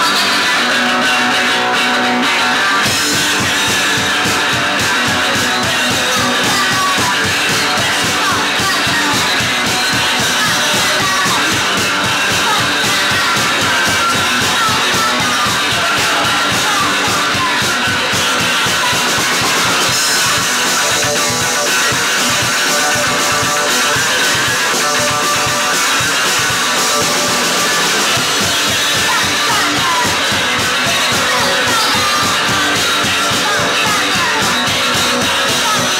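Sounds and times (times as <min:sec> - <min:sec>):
drum kit: 0:00.0 - 0:35.9
strummed guitar: 0:00.0 - 0:35.9.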